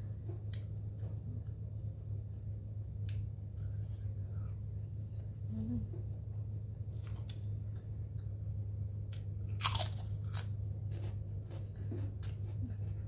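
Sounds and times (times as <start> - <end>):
low hum: 0.0 - 13.0
person chewing crunchy food: 9.0 - 13.0.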